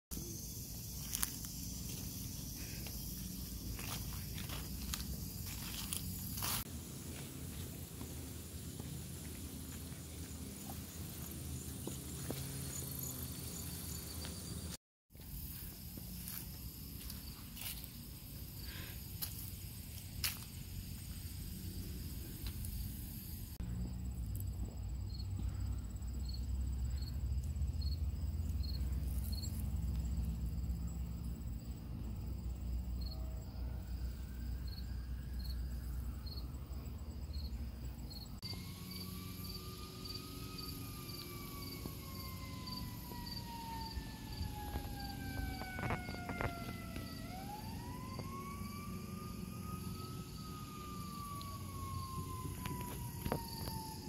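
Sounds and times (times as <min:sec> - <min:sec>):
crickets chirping: 0:00.1 - 0:54.0
siren wailing: 0:38.4 - 0:54.0.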